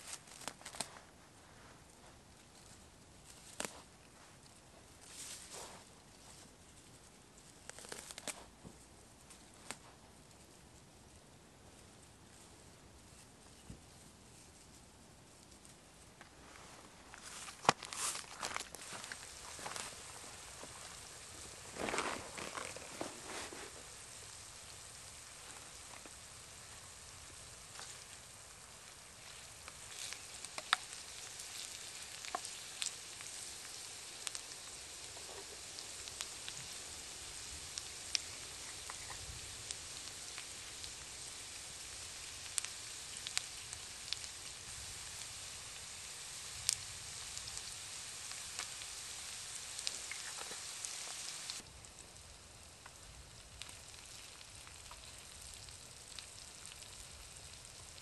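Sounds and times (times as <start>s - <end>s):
food sizzling in a skillet: 18.8s - 58.0s.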